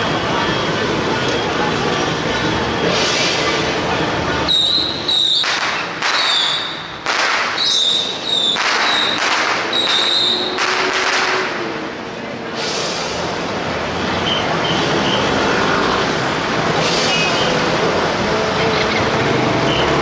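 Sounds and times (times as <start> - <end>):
firecrackers crackling: 2.9 - 12.0
short high whistle blasts: 4.5 - 5.5, 7.6 - 10.5.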